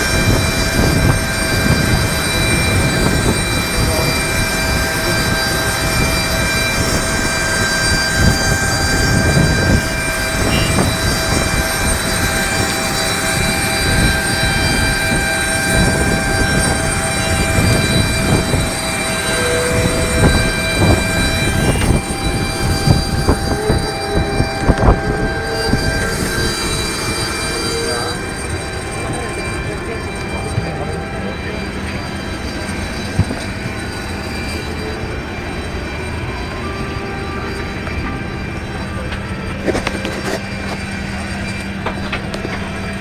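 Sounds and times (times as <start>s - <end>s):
jet engine rumble: 0.0s - 43.0s
jet turbine whine: 0.0s - 43.0s.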